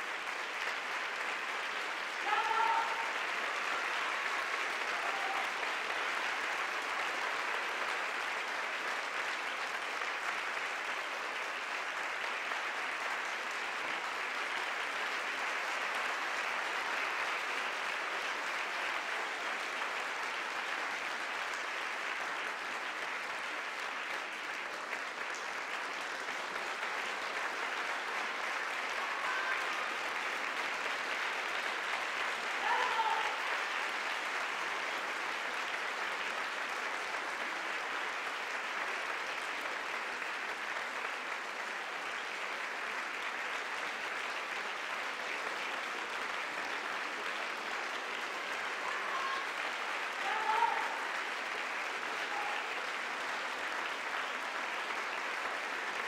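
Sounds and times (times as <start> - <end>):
audience applauding: 0.0 - 56.0
shouts from crowd: 2.2 - 3.2, 4.8 - 5.6, 29.0 - 29.7, 32.6 - 33.6, 48.8 - 49.6, 50.2 - 51.2, 52.2 - 52.8.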